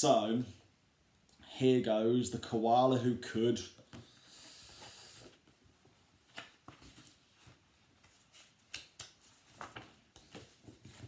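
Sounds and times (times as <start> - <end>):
paper rustling: 6.2 - 11.0.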